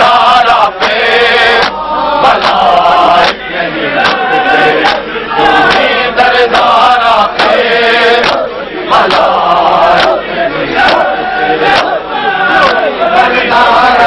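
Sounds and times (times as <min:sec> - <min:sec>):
men chanting a lament: 0:00.0 - 0:14.0
chest-beating slaps: 0:03.2 - 0:03.4, 0:04.0 - 0:05.1, 0:05.7 - 0:05.9, 0:07.4 - 0:07.6, 0:08.2 - 0:08.4.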